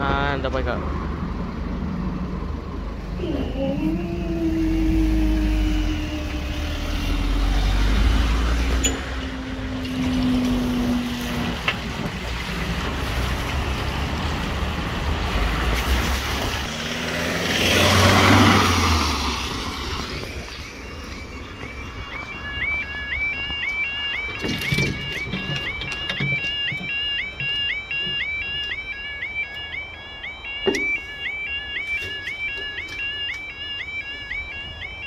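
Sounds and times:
vehicle driving over crossing: 0:00.9 - 0:23.6
level crossing barrier hum: 0:02.8 - 0:10.6.

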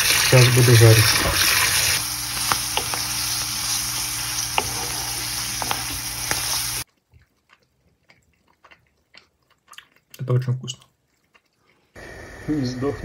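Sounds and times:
mushrooms and onion sizzling: 0:00.0 - 0:06.9.

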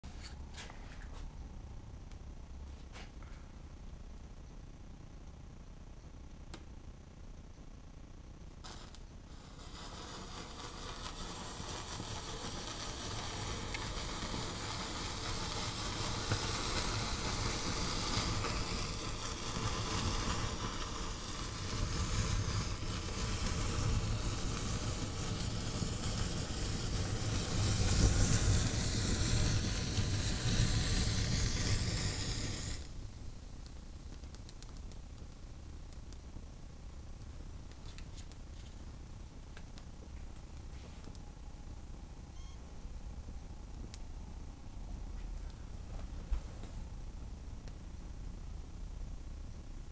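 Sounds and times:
matches flaring hiss and sizzle: 0:08.6 - 0:41.3.

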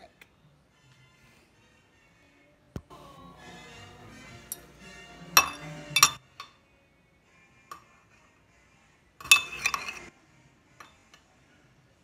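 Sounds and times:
metal spoon clinking in ceramic pot: 0:05.4 - 0:06.6, 0:09.2 - 0:10.1.

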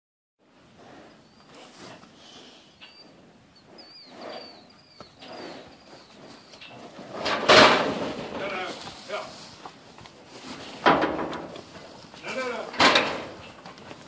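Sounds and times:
small birds chirping: 0:00.8 - 0:07.0
cattle rustling in straw: 0:05.3 - 0:14.0.

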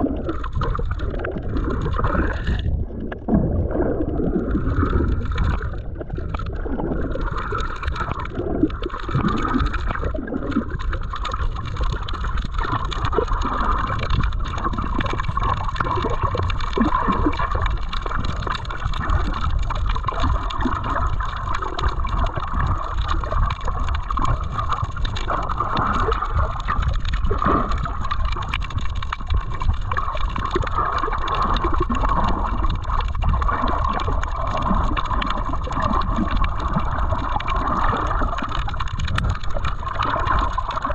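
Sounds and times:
underwater gurgling water: 0:00.0 - 0:40.9.

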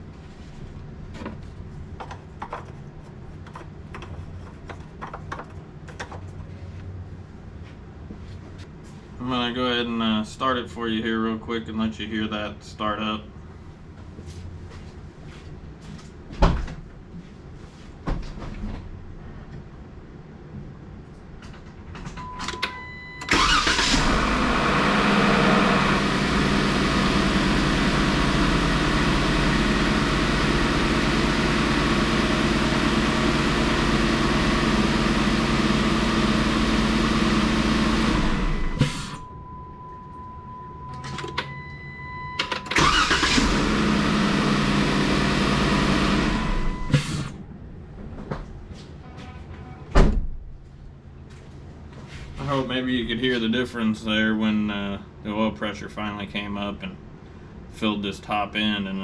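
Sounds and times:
car engine starting: 0:23.2 - 0:39.3, 0:42.4 - 0:47.4.

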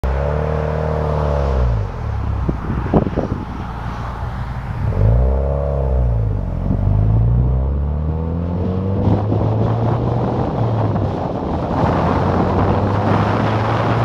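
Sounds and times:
car engine accelerating: 0:00.0 - 0:14.0.

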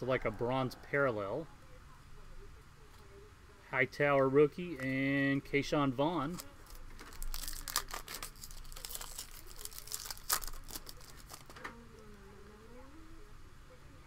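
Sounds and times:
foil pack tearing and crinkling: 0:06.3 - 0:11.7.

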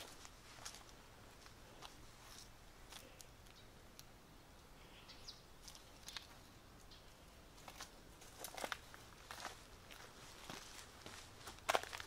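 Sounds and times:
faint footstep clicks on a path: 0:00.0 - 0:04.1, 0:05.6 - 0:12.0
faint bird chirp: 0:03.0 - 0:03.8, 0:04.6 - 0:07.4.

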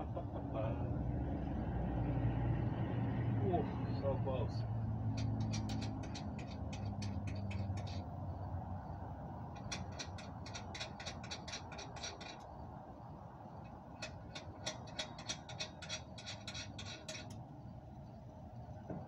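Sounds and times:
ratchet clicking rapidly: 0:04.9 - 0:08.4, 0:09.4 - 0:12.7, 0:13.5 - 0:17.5.

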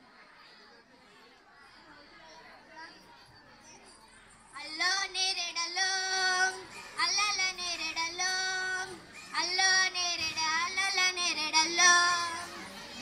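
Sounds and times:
girl singing into microphone: 0:04.6 - 0:12.6.

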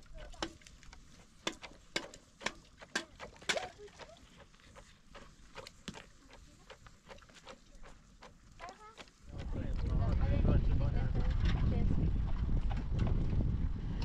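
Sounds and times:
wooden pestle pounding in mortar: 0:01.4 - 0:10.0.

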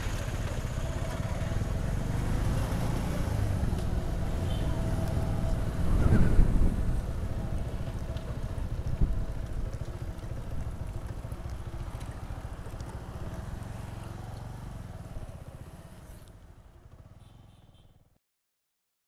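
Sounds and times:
motorcycle engine running: 0:00.0 - 0:17.8.

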